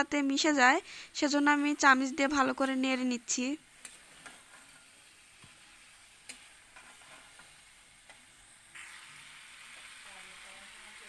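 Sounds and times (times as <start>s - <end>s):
faint sizzle: 0.0s - 11.0s
spatula scraping metal pan: 3.8s - 8.2s.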